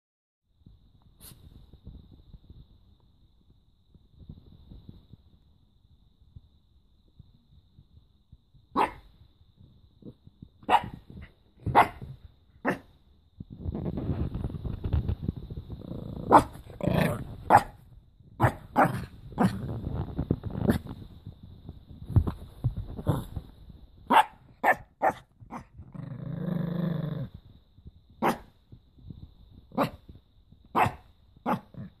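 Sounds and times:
small dog barking: 8.7s - 9.1s, 10.6s - 12.9s, 16.3s - 17.8s, 18.4s - 19.6s, 24.1s - 25.7s, 28.2s - 28.5s, 29.8s - 30.0s, 30.7s - 31.9s
dog growling: 15.8s - 17.7s, 18.4s - 20.9s, 25.0s - 27.4s.

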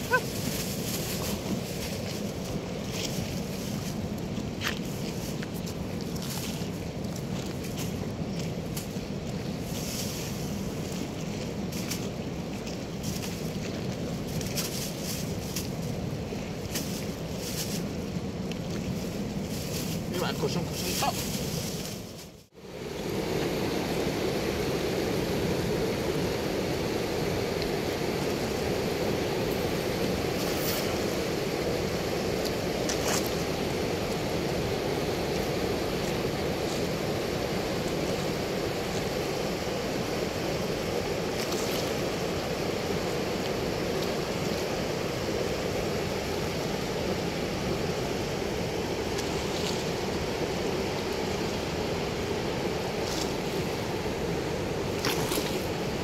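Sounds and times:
water rushing through sluice gate: 22.7s - 56.0s.

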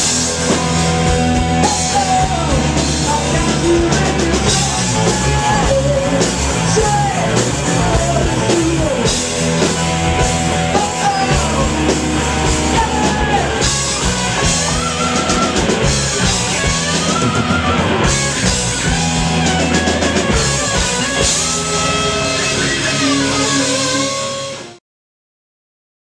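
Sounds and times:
drum kit: 0.0s - 24.8s
electric guitars: 0.0s - 24.8s
person singing into microphone: 0.5s - 9.8s, 10.5s - 19.0s.

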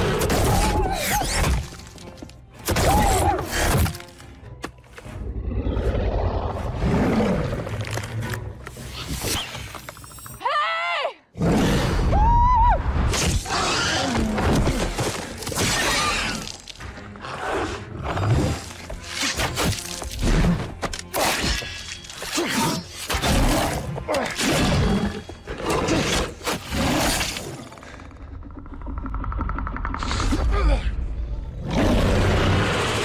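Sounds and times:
music: 0.0s - 10.6s, 11.8s - 33.0s.

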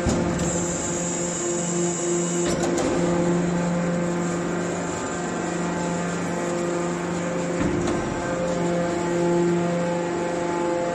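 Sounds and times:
hydraulic pump motor humming: 0.0s - 10.9s.

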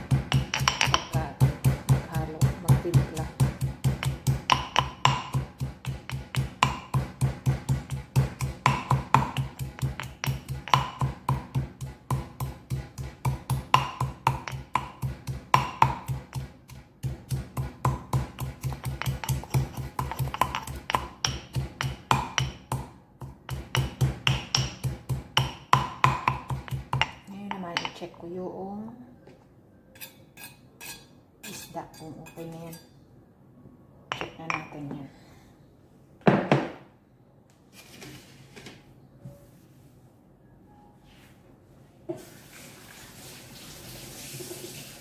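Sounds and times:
pestle pounding in stone mortar: 0.0s - 28.0s.

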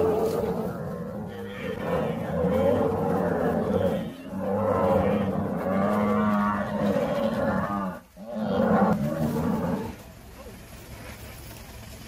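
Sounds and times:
cattle bellowing: 0.0s - 10.0s.

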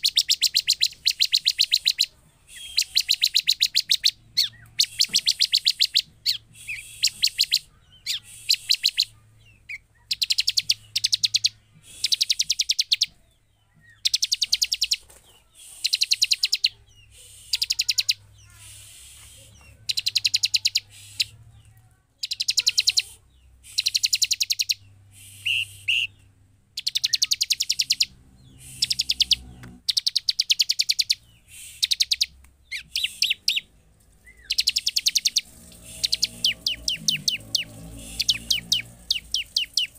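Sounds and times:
bird whistled notes: 0.0s - 9.1s, 23.6s - 26.2s, 26.8s - 33.6s, 34.3s - 39.9s
bird calling high trills: 26.8s - 39.9s.

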